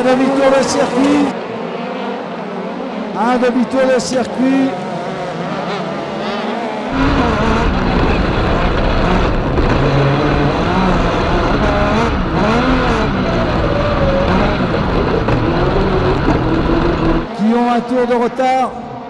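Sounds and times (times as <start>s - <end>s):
motorcycle engine revving: 4.5s - 17.4s.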